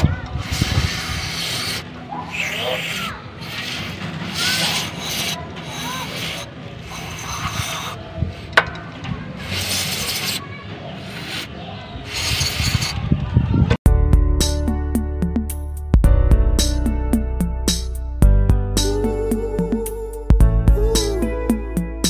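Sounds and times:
aerosol spray hissing: 0.4 - 8.5, 11.0 - 11.5.

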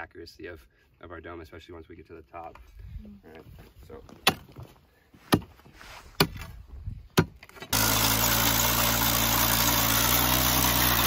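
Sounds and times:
metal bar striking rocky ground: 6.2 - 7.8
earth auger engine running: 7.7 - 11.0.

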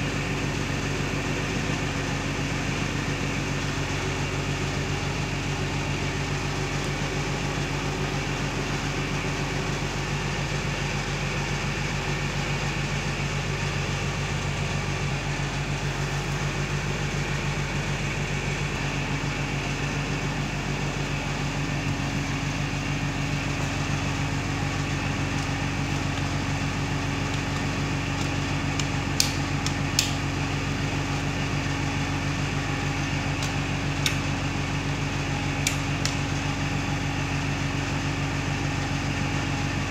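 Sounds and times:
motor humming: 2.6 - 37.6
rocker switch clicks: 27.3 - 30.2, 33.4 - 34.3, 35.6 - 36.3.

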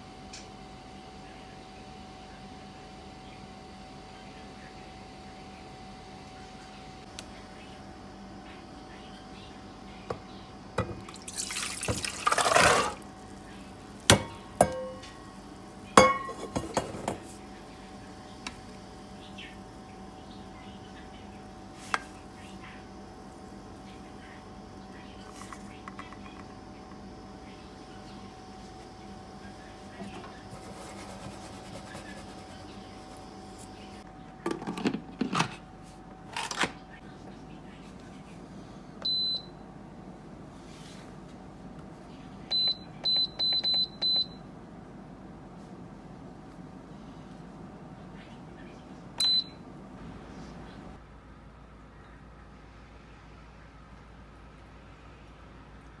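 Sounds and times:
water and beans pouring: 11.1 - 13.0.

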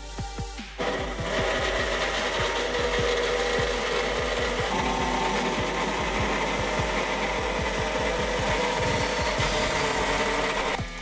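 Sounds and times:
high held tones: 0.0 - 11.0
router cutting plastic: 0.8 - 11.0.

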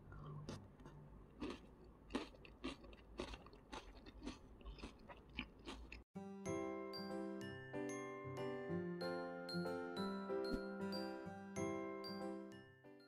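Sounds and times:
crunchy salad being chewed: 0.5 - 6.0.

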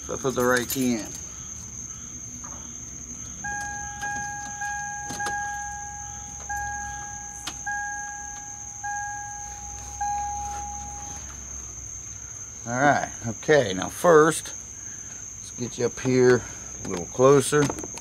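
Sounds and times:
crickets chirring: 0.0 - 18.0
car warning chime bonging: 3.4 - 11.4.

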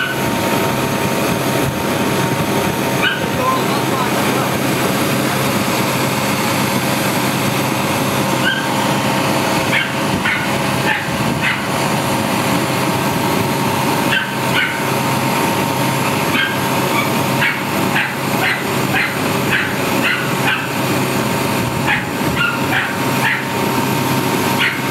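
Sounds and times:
crane engine running: 0.0 - 24.9
dog barking: 3.0 - 3.4, 8.4 - 8.8, 9.7 - 11.7, 14.1 - 14.9, 16.3 - 20.8, 21.8 - 23.6, 24.6 - 24.9.

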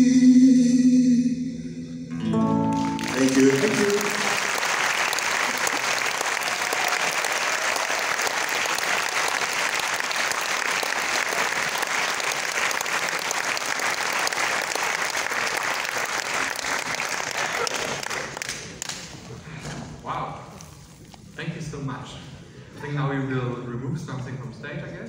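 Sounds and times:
audience applauding: 2.5 - 19.3.

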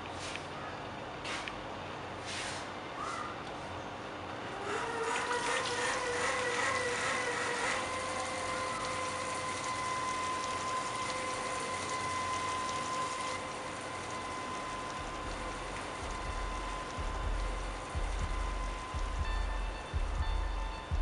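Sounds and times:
steady whining tone: 4.4 - 21.0
tap water running into sink: 5.2 - 19.4.

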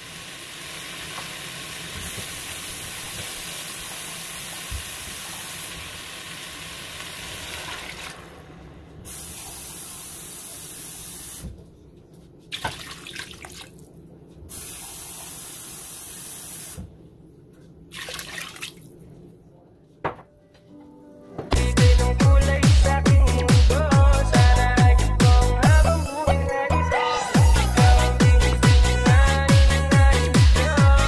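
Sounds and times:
steady hiss: 0.0 - 7.5, 9.0 - 11.5
water pouring into a pot: 0.0 - 8.4.

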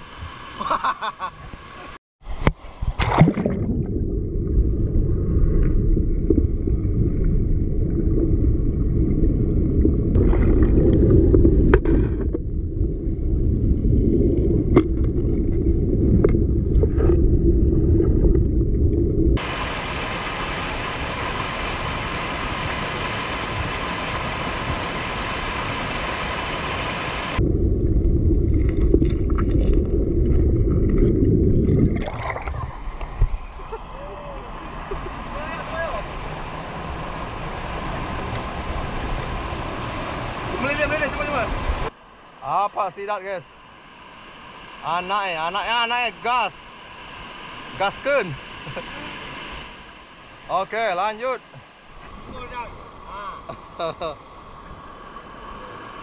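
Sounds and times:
steady hiss of water: 0.0 - 3.0, 19.4 - 27.4, 32.7 - 56.0
muffled rushing river water: 0.0 - 56.0.

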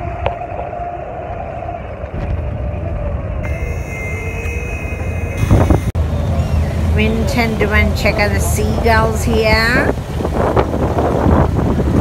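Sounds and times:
loud burst of noise: 0.0 - 7.1
boat diesel engine rumbling: 0.9 - 12.0.

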